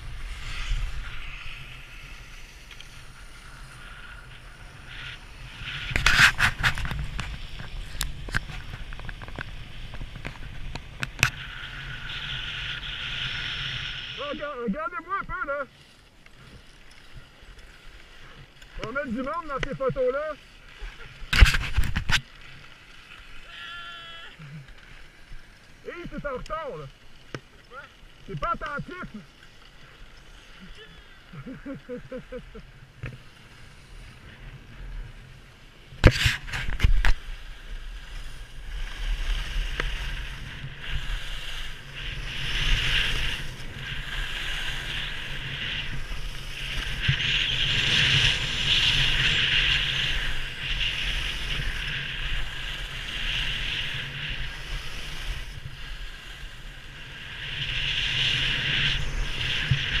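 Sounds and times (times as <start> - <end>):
wind on microphone: 0.0 - 14.3, 36.0 - 60.0
skis scraping on snow: 0.0 - 60.0.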